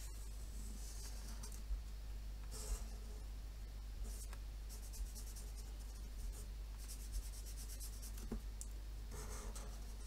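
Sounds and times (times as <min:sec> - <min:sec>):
marker scratching on paper: 0:04.0 - 0:08.3, 0:09.1 - 0:10.0.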